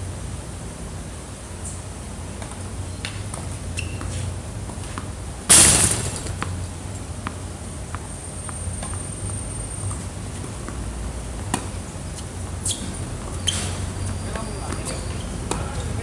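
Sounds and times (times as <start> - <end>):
tennis ball struck and bouncing: 4.9 - 6.6
loud sharp impact: 5.5 - 6.5.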